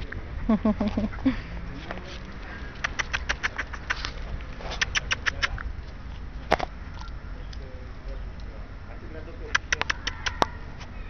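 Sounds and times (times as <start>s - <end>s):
dog claws clicking on asphalt: 1.8s - 7.6s, 9.5s - 10.9s
sharp click: 2.8s - 4.1s, 4.8s - 5.7s, 9.6s - 10.5s.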